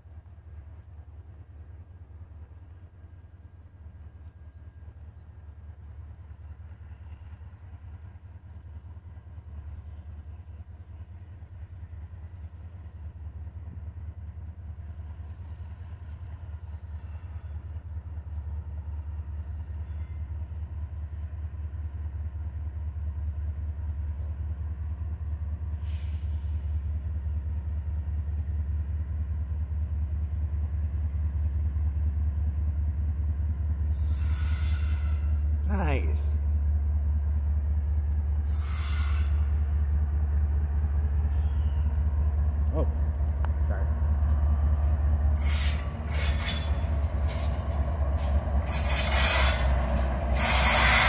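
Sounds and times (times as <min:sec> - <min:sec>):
diesel locomotive engine rumble: 0:00.0 - 0:51.0.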